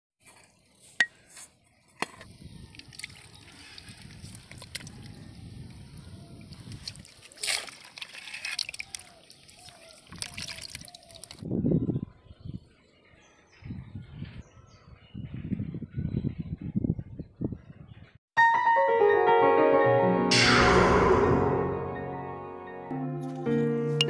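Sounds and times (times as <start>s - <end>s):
water sloshing in a plastic tub: 6.8s - 11.4s.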